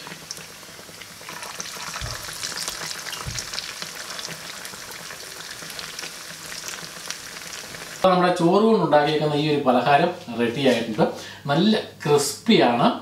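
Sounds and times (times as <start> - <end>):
patties sizzling in hot oil: 0.0 - 8.1.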